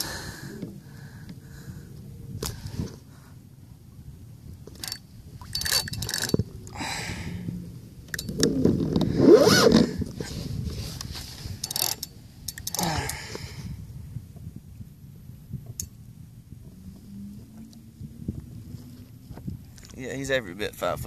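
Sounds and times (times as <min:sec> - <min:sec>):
gear handling knocks and scrapes: 0:10.6 - 0:12.8.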